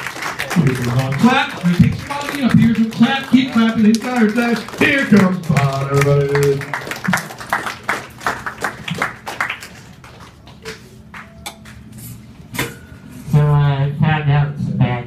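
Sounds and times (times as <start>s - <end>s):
audience applauding: 0.0s - 11.4s.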